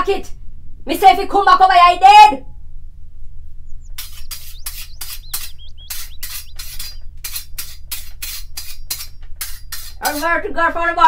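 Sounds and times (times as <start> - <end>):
steady low hum: 0.0 - 10.8
bird chirps: 3.6 - 10.0.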